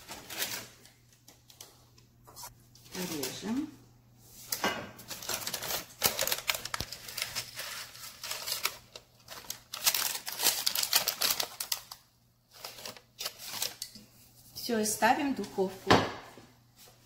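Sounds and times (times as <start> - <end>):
parchment paper crinkling: 0.0 - 3.7, 5.0 - 14.0.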